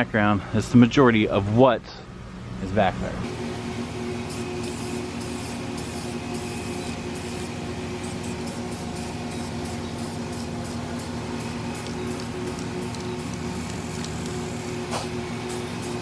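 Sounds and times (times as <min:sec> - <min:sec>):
steady background hum: 0:00.0 - 0:16.0
spray paint can hissing: 0:04.1 - 0:16.0.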